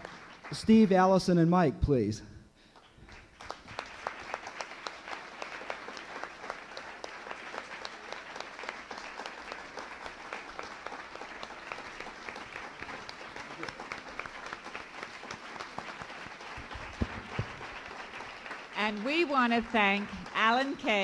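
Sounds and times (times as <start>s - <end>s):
audience applauding: 0.0s - 1.2s, 2.7s - 21.0s.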